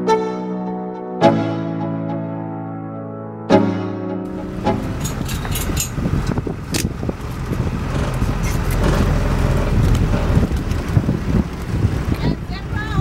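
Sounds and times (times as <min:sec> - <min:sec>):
vehicle rumbling on rough track: 0:04.3 - 0:13.0
knocks and rattles: 0:04.7 - 0:12.2.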